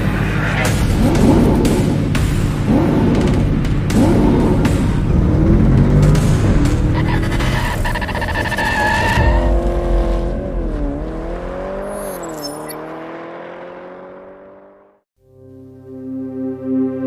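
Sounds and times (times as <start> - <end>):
car engine noise: 0.0 - 15.1
tyres screeching: 6.9 - 9.6.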